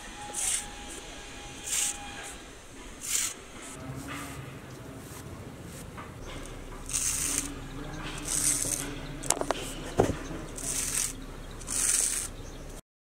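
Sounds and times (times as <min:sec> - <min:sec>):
tool scraping wet plaster: 0:00.0 - 0:03.8, 0:06.3 - 0:12.4.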